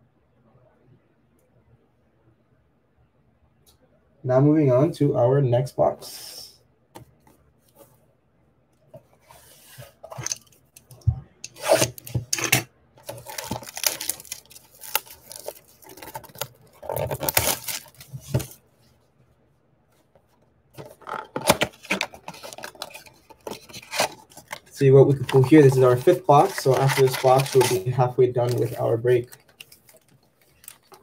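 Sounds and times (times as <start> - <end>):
cardboard tearing and rustling: 11.5 - 18.6, 20.8 - 31.0.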